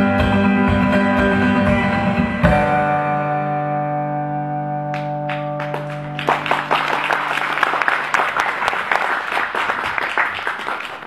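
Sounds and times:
acoustic guitar chord ringing: 0:00.0 - 0:06.8
audience applause: 0:05.0 - 0:11.0.

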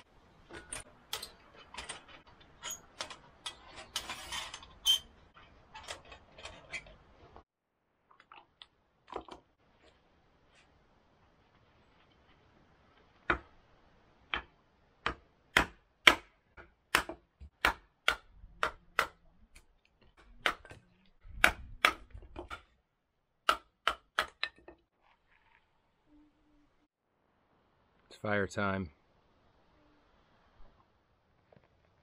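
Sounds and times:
hatchet splitting wood: 0:14.3 - 0:22.7, 0:23.4 - 0:24.7.

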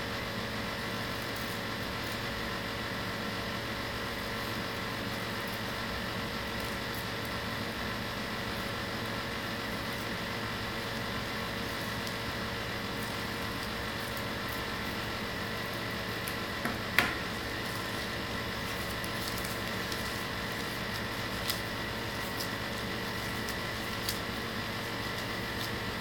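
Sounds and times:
room tone hiss and hum: 0:00.0 - 0:26.0
scissors and paper clicks: 0:16.2 - 0:26.0.

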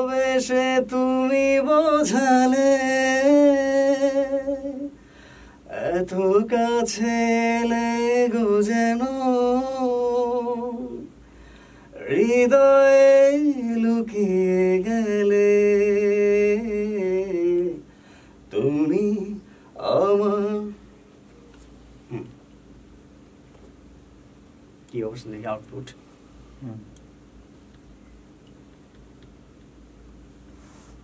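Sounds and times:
man singing with vibrato: 0:00.0 - 0:05.0, 0:05.7 - 0:11.1, 0:11.9 - 0:17.8, 0:18.5 - 0:20.8
singer breathing: 0:05.0 - 0:05.7, 0:11.2 - 0:12.0, 0:17.8 - 0:18.5, 0:19.4 - 0:19.8.

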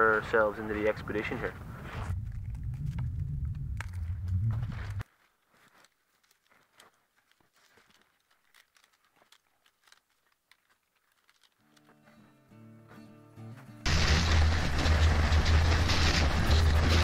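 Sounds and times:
low rumble: 0:01.5 - 0:05.0, 0:13.9 - 0:17.0
crunches: 0:01.8 - 0:12.3
tent poles clicking: 0:04.9 - 0:12.2.

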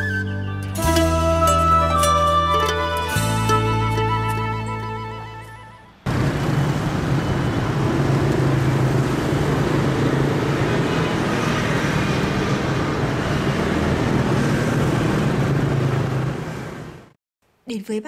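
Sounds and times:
traffic noise: 0:05.9 - 0:17.2
low engine hum: 0:06.0 - 0:17.2.

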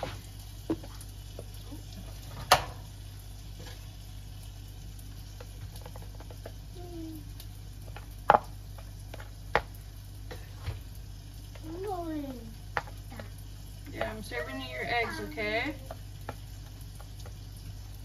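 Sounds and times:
utensil clacking on pan and plate: 0:12.7 - 0:15.3.

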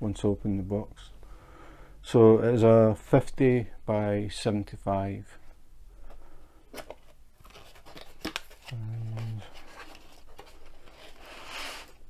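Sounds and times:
packaging rustling and sliding: 0:06.7 - 0:12.0
man humming: 0:08.7 - 0:09.5.

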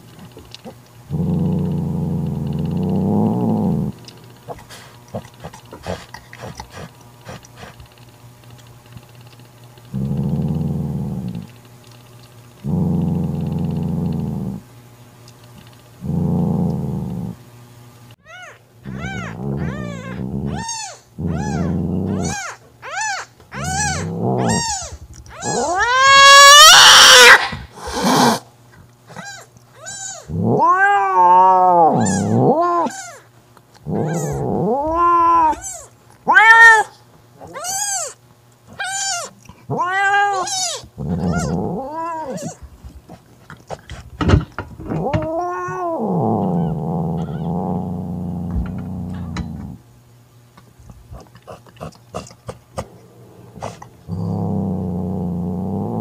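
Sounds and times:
cat growling: 0:00.2 - 0:07.9, 0:09.9 - 0:11.5, 0:12.6 - 0:14.6, 0:16.0 - 0:17.4, 0:18.3 - 0:38.1, 0:38.7 - 0:49.8, 0:50.9 - 0:56.0
cat caterwauling: 0:18.2 - 0:28.4, 0:29.1 - 0:33.2, 0:33.9 - 0:42.6, 0:44.8 - 0:48.8
cat screaming: 0:18.2 - 0:28.4, 0:29.1 - 0:33.2, 0:33.9 - 0:42.6.

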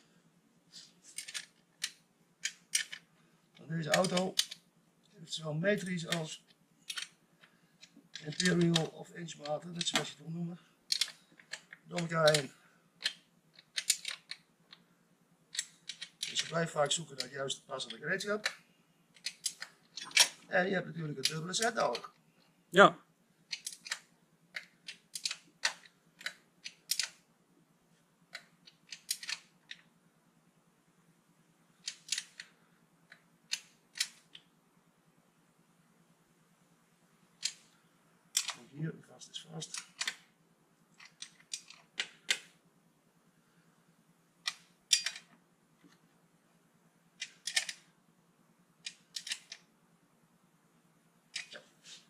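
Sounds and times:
faint low hum: 0:00.0 - 0:52.0
metal tool clicks and clinks: 0:44.5 - 0:45.3.

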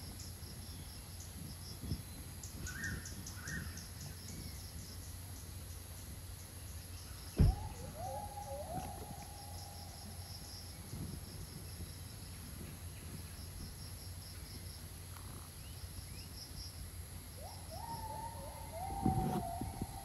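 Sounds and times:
insect chirps: 0:00.0 - 0:20.0
whistle-like rising tone: 0:17.6 - 0:20.0.

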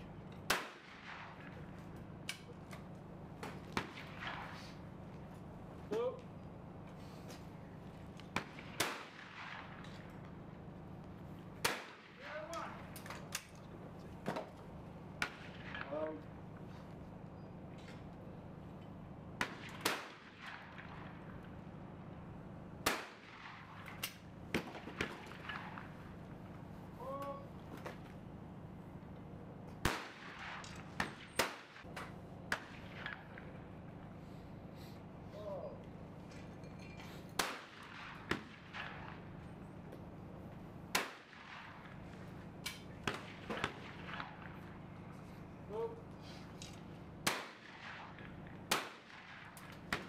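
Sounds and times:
steady low hum: 0:00.0 - 0:50.0
shotgun shots: 0:00.4 - 0:01.6, 0:03.4 - 0:04.8, 0:08.3 - 0:10.1, 0:11.6 - 0:12.8, 0:15.2 - 0:16.2, 0:19.4 - 0:21.5, 0:22.8 - 0:26.1, 0:29.8 - 0:33.6, 0:37.4 - 0:39.4, 0:40.9 - 0:42.2, 0:42.8 - 0:44.8, 0:47.2 - 0:50.0.

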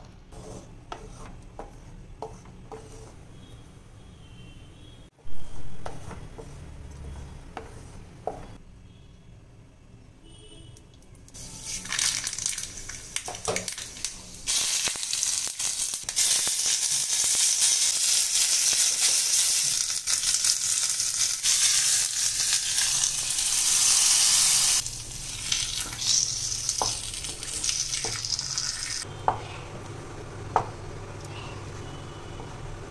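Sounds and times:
hot oil sizzling in a pan: 0:11.4 - 0:29.1.

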